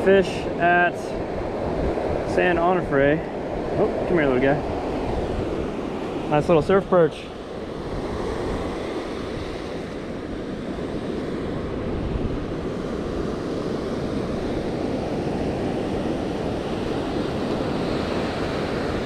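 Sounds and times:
waves washing up a beach: 0.0s - 19.0s
wind buffeting microphone: 0.4s - 19.0s.

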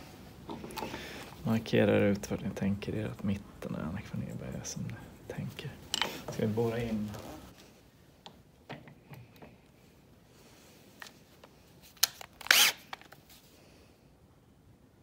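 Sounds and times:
drill being handled clicks: 12.0s - 13.2s.

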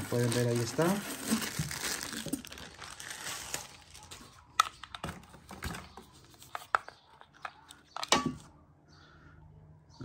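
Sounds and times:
styrofoam packaging rustling: 0.0s - 6.9s.

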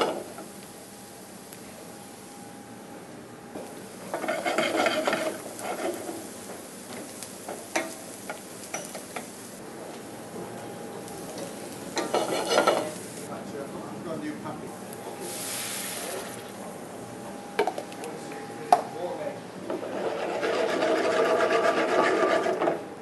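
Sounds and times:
soft sizzle: 0.0s - 20.2s
wooden spoon scraping a pan: 4.1s - 6.3s, 12.0s - 13.0s, 19.7s - 22.8s.

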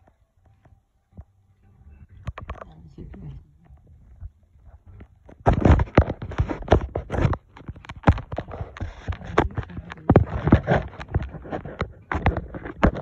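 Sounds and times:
phone handling knocks and scrapes: 4.9s - 13.0s.

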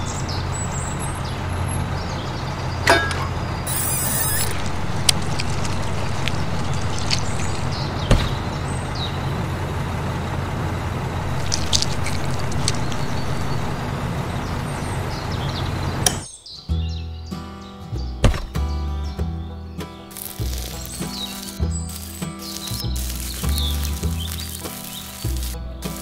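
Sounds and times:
low engine drone: 0.0s - 16.3s, 20.1s - 26.0s.

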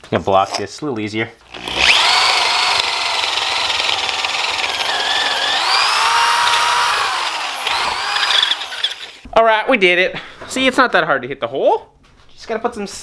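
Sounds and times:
electric drill boring into wood: 1.5s - 9.2s.

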